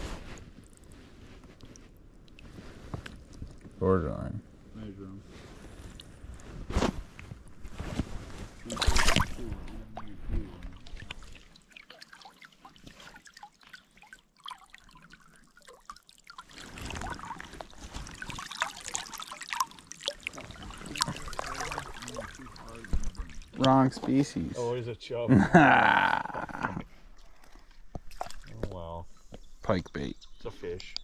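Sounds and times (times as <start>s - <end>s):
stream water trickling: 0.4s - 4.2s, 8.6s - 24.8s, 26.3s - 29.3s
water splashing: 8.6s - 24.5s, 27.0s - 28.9s.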